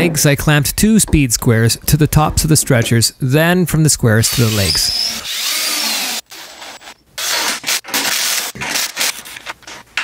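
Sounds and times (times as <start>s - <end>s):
power drill running: 4.3s - 7.3s.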